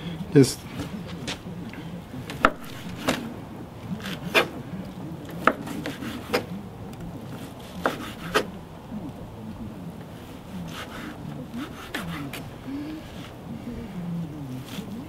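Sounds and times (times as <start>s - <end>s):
soft rubbing of knife: 5.3s - 6.6s, 10.2s - 13.4s.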